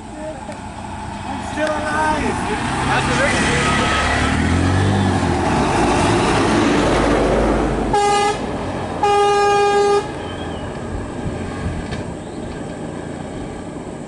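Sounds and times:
tyres rushing: 0.0 - 9.0
bus engine running: 0.0 - 14.0
vehicle horn honking: 7.9 - 10.4.

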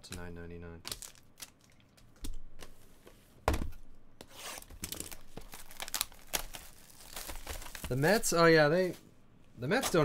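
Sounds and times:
plastic shrink-wrap crinkling: 0.9 - 1.9, 4.8 - 8.5.

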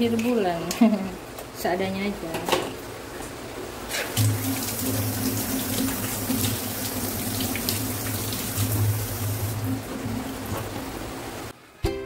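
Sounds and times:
tap water running into sink: 4.0 - 10.8.

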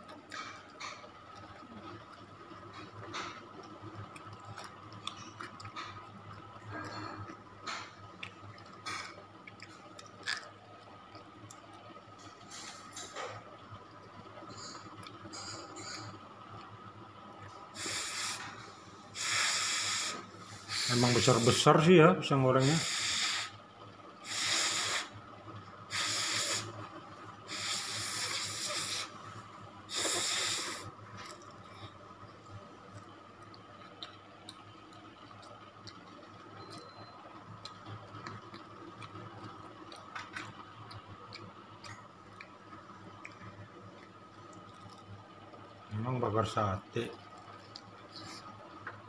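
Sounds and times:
faint steady hum: 0.0 - 49.0
crunchy biting and chewing: 8.2 - 11.7.

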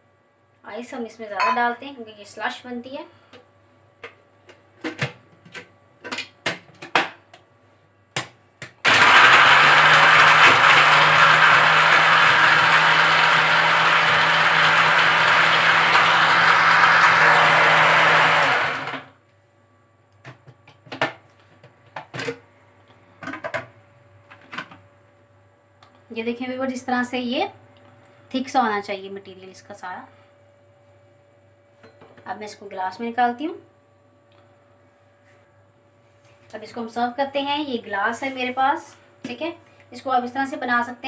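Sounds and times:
blender crushing ice: 8.7 - 19.1.

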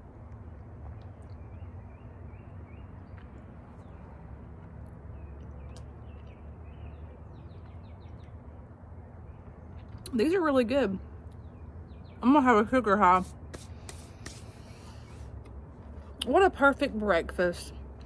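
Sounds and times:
small birds chirping: 0.9 - 15.3.

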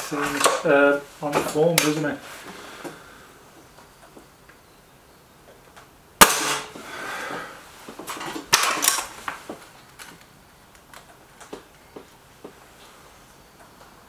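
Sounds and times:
air rifle shot crack: 6.2 - 6.9.

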